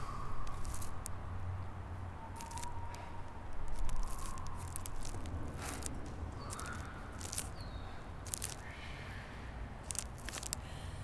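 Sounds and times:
steady low rumble: 0.0 - 11.0
creature clicking: 0.4 - 1.1, 2.4 - 2.7, 3.6 - 7.6, 8.2 - 8.6, 9.8 - 10.6
wet chittering: 0.4 - 1.1, 2.3 - 7.6, 8.2 - 8.7, 9.8 - 10.6.

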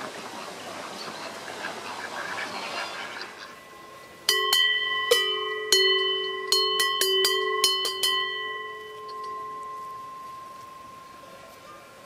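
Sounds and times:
cowbells clanking: 3.4 - 12.0.

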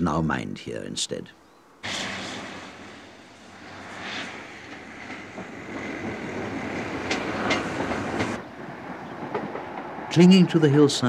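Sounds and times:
diesel train rumbling: 1.8 - 11.0
train wheel clicks: 1.9 - 10.0.

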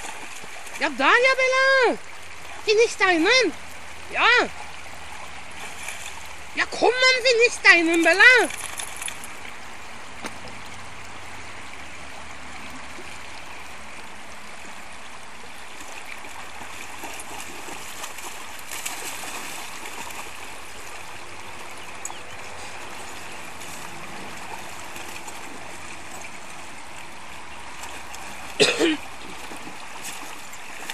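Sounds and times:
shallow river running over rocks: 0.0 - 30.9
dog splashing through water: 4.5 - 6.4, 15.7 - 21.2, 22.0 - 30.9.

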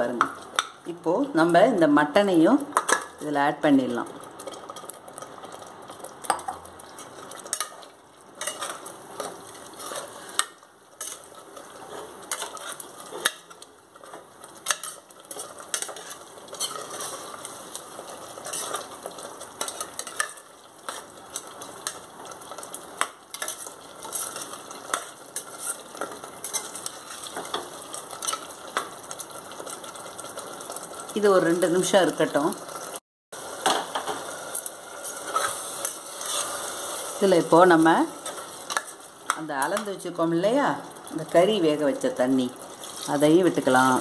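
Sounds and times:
oil sizzling: 0.0 - 44.0
steel spoon scraping pot: 14.6 - 17.4, 18.4 - 18.8, 23.3 - 27.5, 35.0 - 37.1.

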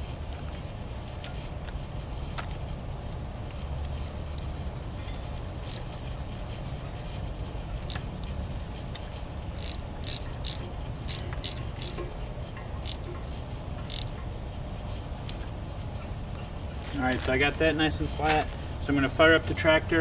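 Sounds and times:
ratchet clicking: 4.3 - 5.9, 7.8 - 14.3.

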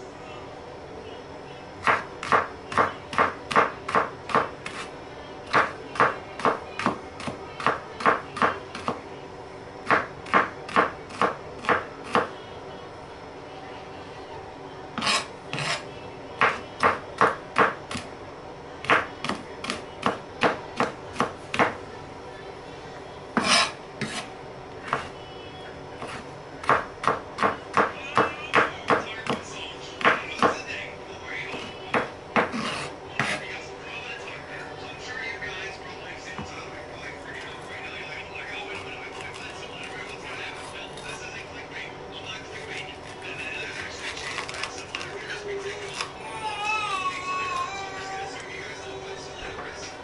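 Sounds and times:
knife chopping on wooden board: 1.8 - 4.9, 5.5 - 9.0, 9.8 - 12.3, 16.4 - 18.0, 23.4 - 24.3, 26.0 - 29.4, 30.0 - 30.6, 31.6 - 33.4.

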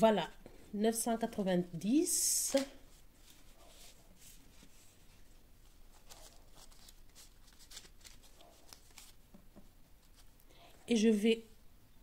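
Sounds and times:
banknotes rustling and flicking: 2.4 - 10.4.

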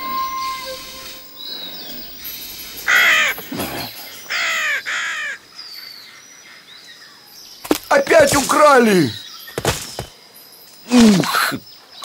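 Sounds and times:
crow cawing: 2.9 - 3.4, 4.3 - 5.4.

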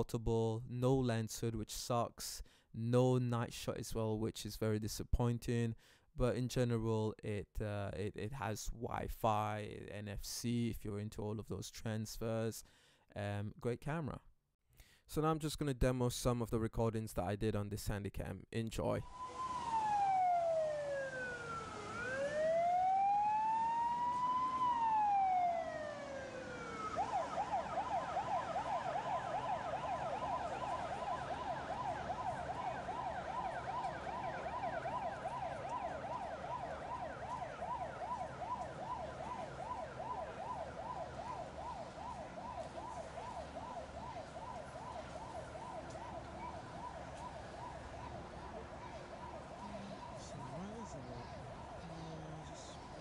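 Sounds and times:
boat siren wailing and yelping: 19.0 - 53.0.

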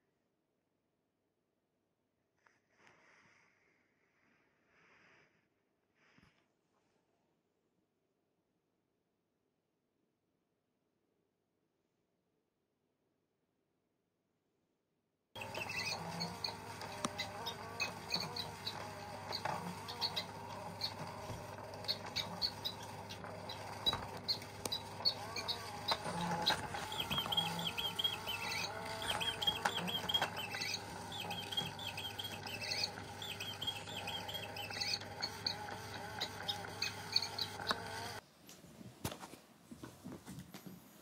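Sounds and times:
steady electric hum: 15.4 - 38.2
electronic bird chirps: 21.8 - 37.6.

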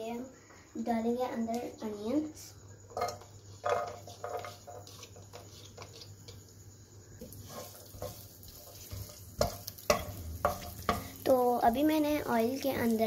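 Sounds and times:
onions sizzling: 2.8 - 13.0
wooden spoon stirring: 3.0 - 6.6, 7.2 - 11.1
onions dropping into oil: 7.2 - 13.0.

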